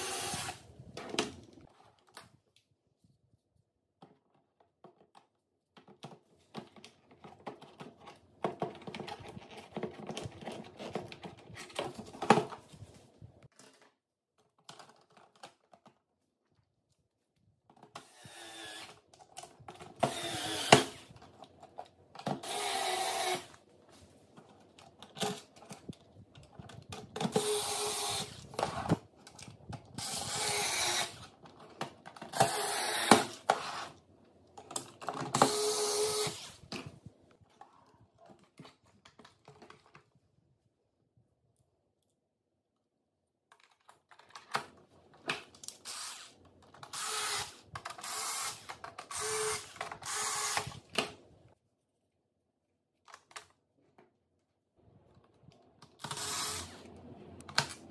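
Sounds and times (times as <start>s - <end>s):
electric screwdriver whirring: 0.0s - 0.6s, 18.0s - 19.0s, 20.0s - 21.1s, 22.4s - 23.6s, 27.3s - 29.0s, 30.0s - 31.3s, 32.3s - 33.8s, 35.3s - 36.6s, 45.8s - 50.8s, 56.0s - 56.9s
plastic parts clicking together: 13.5s - 16.1s, 43.5s - 51.2s, 53.0s - 54.1s, 55.1s - 57.9s.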